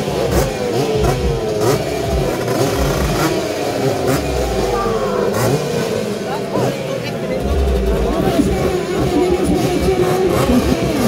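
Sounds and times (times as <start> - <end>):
motocross engines revving: 0.0 - 11.0.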